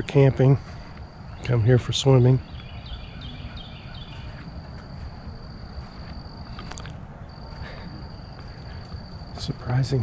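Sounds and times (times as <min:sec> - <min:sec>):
low rumbling background noise: 0:00.0 - 0:10.0.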